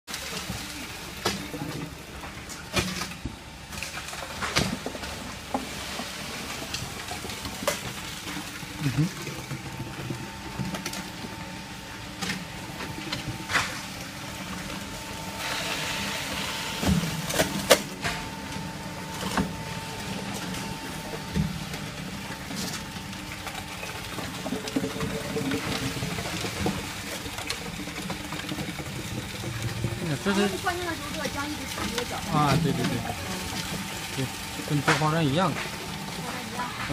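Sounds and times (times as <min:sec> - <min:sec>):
faint machine whine: 0:00.1 - 0:36.9.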